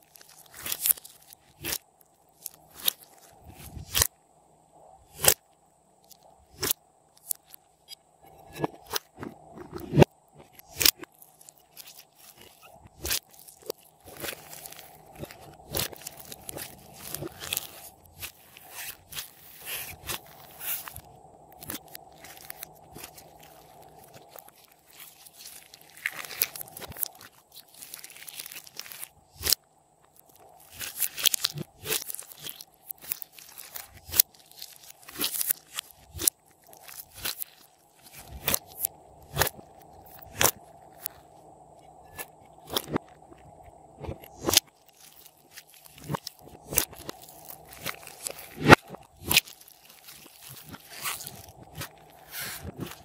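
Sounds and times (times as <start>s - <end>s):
slime squelching: 0.0s - 4.1s, 8.3s - 41.4s, 42.0s - 53.0s
wet crackles and pops: 0.0s - 4.2s, 5.1s - 53.0s
air pockets popping: 12.3s - 21.0s.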